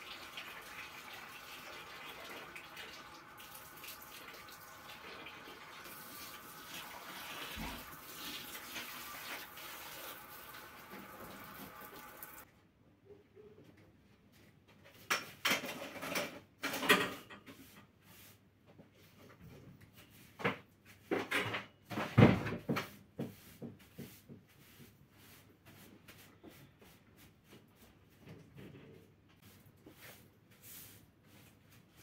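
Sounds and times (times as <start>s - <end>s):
objects clattering and knocking: 15.0s - 17.5s.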